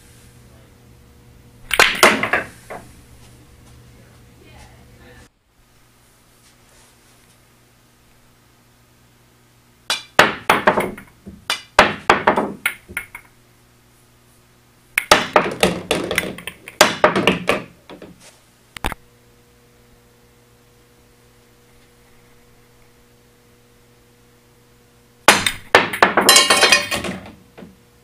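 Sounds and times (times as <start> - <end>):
cue striking ball: 1.7 - 2.8, 9.9 - 13.2, 15.0 - 17.8, 25.3 - 27.4
pool balls clacking: 1.7 - 2.9, 9.9 - 13.3, 15.0 - 18.2, 25.3 - 27.8.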